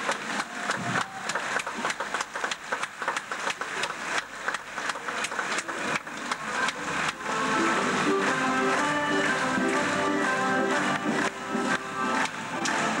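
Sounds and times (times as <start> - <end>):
country dance band music: 6.4 - 13.0.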